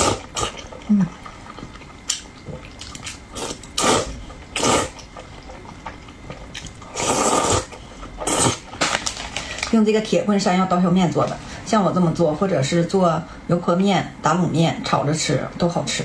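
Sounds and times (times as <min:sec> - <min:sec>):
person eating noodles: 0:00.0 - 0:08.9.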